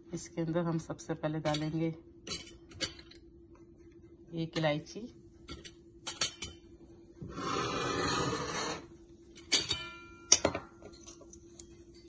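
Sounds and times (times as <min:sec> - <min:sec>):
utensils clinking on metal pan: 0:09.4 - 0:11.3.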